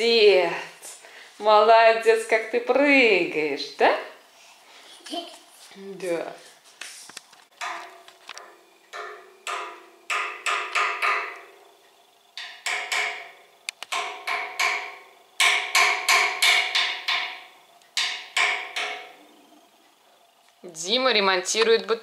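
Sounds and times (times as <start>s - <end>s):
stick striking metal radiator: 7.5s - 11.7s, 12.4s - 19.2s.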